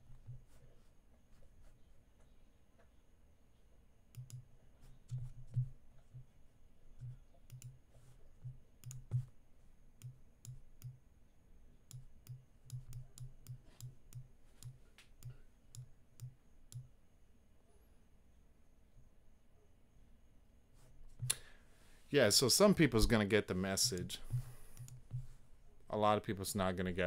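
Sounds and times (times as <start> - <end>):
computer mouse clicking: 4.1 - 6.3, 7.0 - 9.4, 10.0 - 11.0, 11.9 - 16.9, 23.8 - 25.3.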